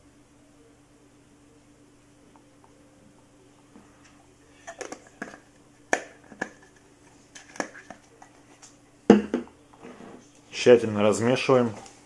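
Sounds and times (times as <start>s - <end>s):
bottle knocking on wooden table: 9.1s - 9.5s.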